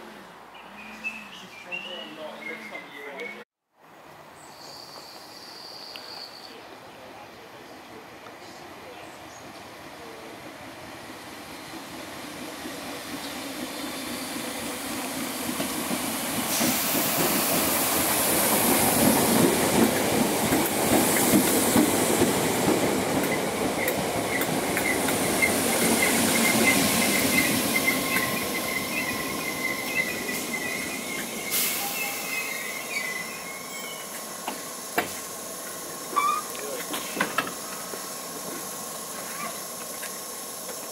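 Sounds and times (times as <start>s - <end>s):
train wheels clattering on rails: 12.5s - 31.8s, 34.1s - 40.9s
high wavering brake squeal: 24.9s - 34.2s, 36.1s - 36.8s.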